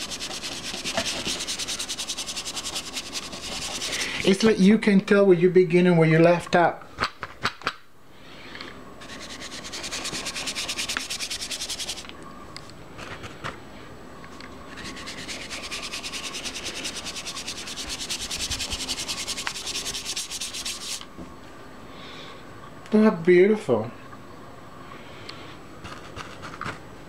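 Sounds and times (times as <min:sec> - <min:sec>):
applicator scrubbing dry powder: 0:00.0 - 0:04.3, 0:09.0 - 0:12.0, 0:14.8 - 0:21.0.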